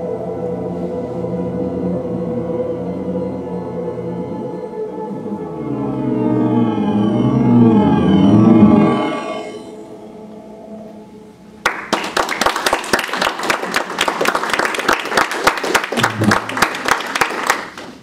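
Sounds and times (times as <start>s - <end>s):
theremin and wind duet: 0.0s - 11.6s
audience applause: 11.6s - 18.0s.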